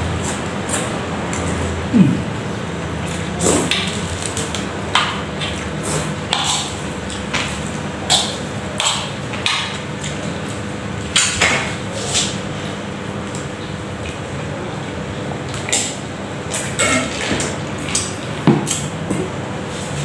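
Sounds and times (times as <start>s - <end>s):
eating sounds: 1.4s - 4.4s.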